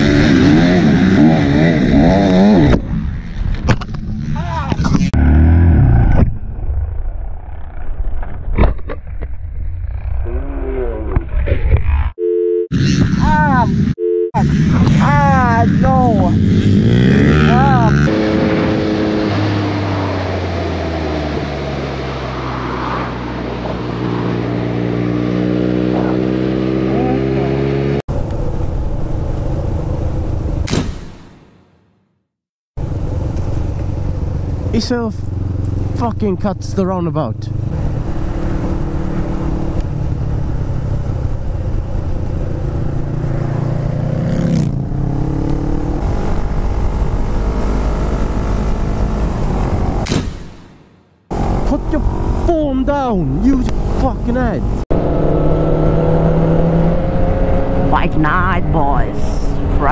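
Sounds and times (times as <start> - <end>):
wind rush: 18.0 - 25.3
motorcycle engine running: 32.8 - 49.2.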